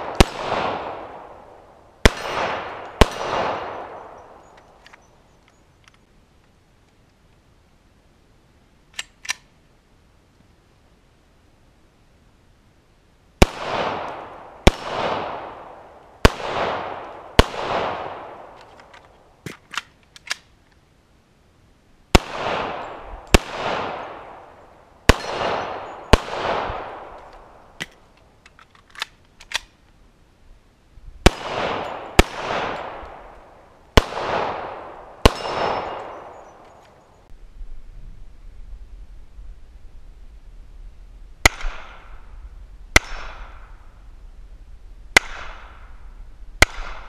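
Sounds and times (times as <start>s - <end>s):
pistol shots with echo: 0.0s - 4.4s, 13.4s - 18.6s, 22.1s - 27.2s, 31.2s - 33.4s, 34.0s - 36.7s, 43.0s - 43.7s, 45.2s - 45.9s, 46.6s - 47.0s.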